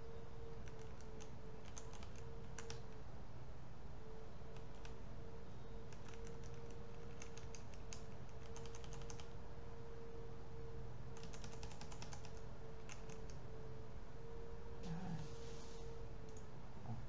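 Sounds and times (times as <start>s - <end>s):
faint steady hum: 0.0s - 17.0s
computer keyboard keys clicking: 0.6s - 3.0s, 4.5s - 5.0s, 5.9s - 9.3s, 11.2s - 13.4s.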